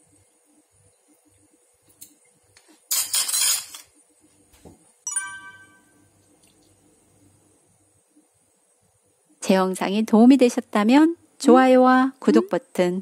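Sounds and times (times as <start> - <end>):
bright ringing clink: 5.1 - 6.1.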